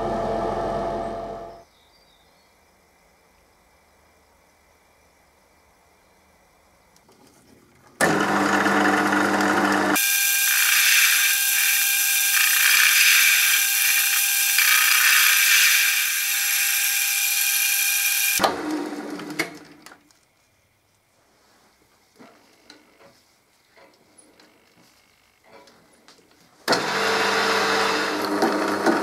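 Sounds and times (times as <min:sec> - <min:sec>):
lathe motor hum: 0:00.0 - 0:01.6, 0:08.0 - 0:19.3, 0:26.7 - 0:29.0
lathe tool cutting steel: 0:08.0 - 0:18.4, 0:26.7 - 0:29.0.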